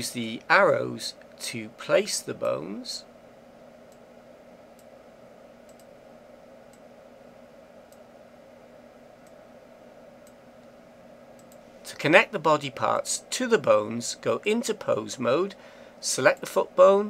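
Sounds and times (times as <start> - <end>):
room noise hiss: 0.0 - 17.0
computer mouse clicks: 5.6 - 5.9, 11.4 - 11.6.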